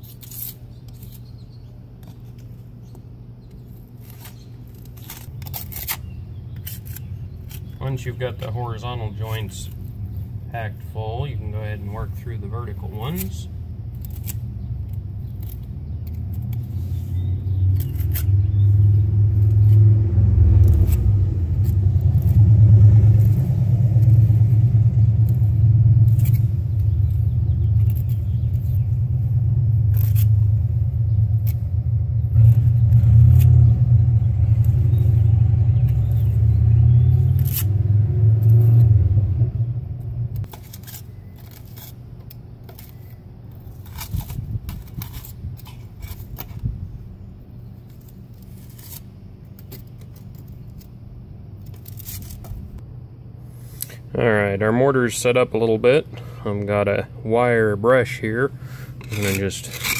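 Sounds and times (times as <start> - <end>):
loud low rumble: 17.3 - 40.6
trowel scraping and tapping mortar: 59.0 - 59.9.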